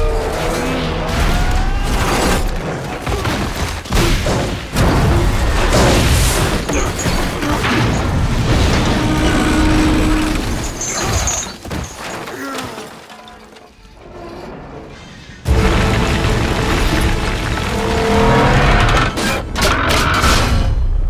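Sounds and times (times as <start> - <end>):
grinding debris rumbling: 0.0 - 21.0
heavy crashing and booming: 1.0 - 10.8, 15.4 - 21.0.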